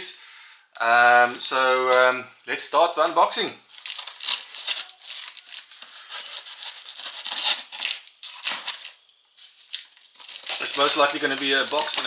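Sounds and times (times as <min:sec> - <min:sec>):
plastic pouch crinkling: 0:03.0 - 0:12.0.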